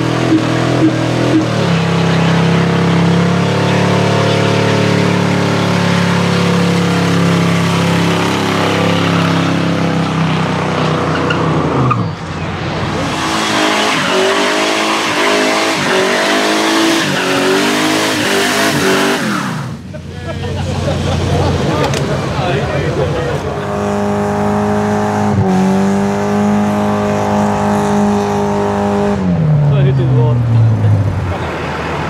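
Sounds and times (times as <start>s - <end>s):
car engine at high revs: 0.0s - 32.0s
car engine revving: 0.0s - 32.0s
tyres squealing: 1.0s - 19.6s.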